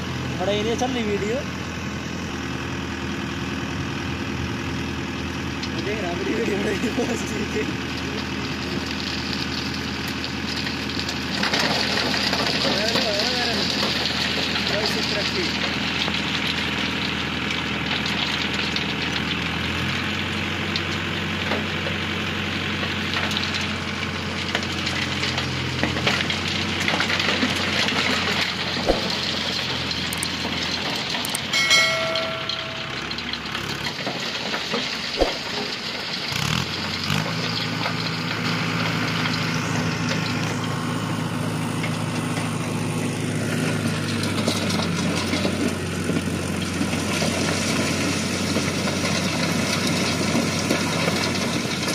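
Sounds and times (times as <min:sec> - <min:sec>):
tractor diesel engine running: 0:00.0 - 0:51.9
short electronic chime: 0:31.5 - 0:33.1.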